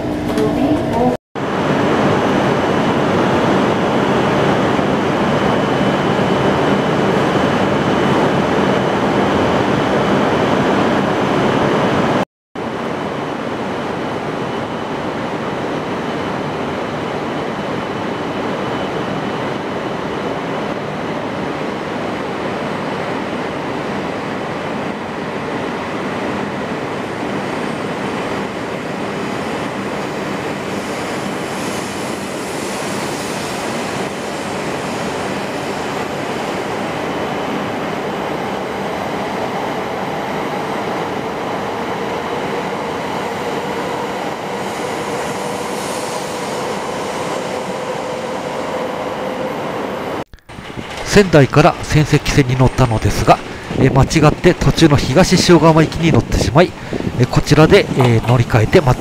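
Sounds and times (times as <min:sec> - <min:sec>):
faint train whines: 0:00.0 - 0:59.0
train wheels rumbling on rails: 0:27.0 - 0:59.0.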